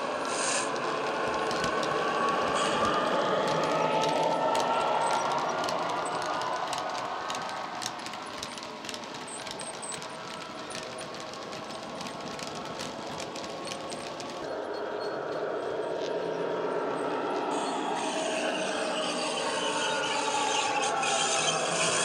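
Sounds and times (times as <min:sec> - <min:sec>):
model train wheels clicking: 0:00.0 - 0:14.5.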